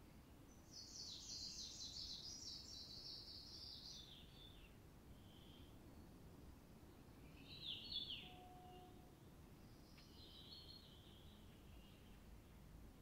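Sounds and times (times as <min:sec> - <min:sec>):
faint low background hiss: 0:00.0 - 0:13.0
bird singing short high phrases: 0:07.3 - 0:08.9.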